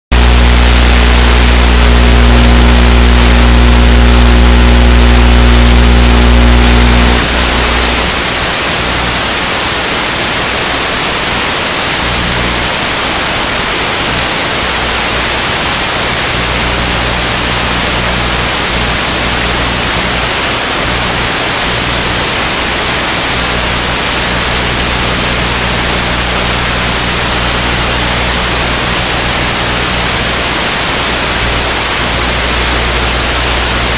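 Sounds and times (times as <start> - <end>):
low hum: 0.1 - 9.4
loud static hiss: 0.1 - 33.9.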